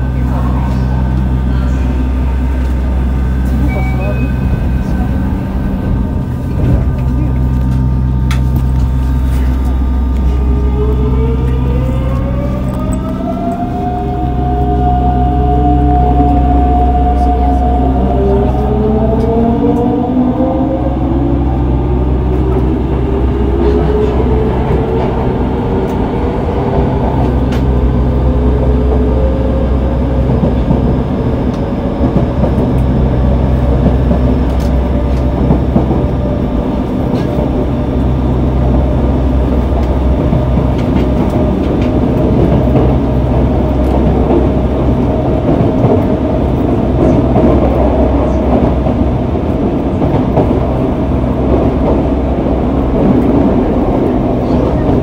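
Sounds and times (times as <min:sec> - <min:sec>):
wheels rumbling on track: 0:00.0 - 0:55.0
train traction motor tone rising: 0:07.6 - 0:32.1.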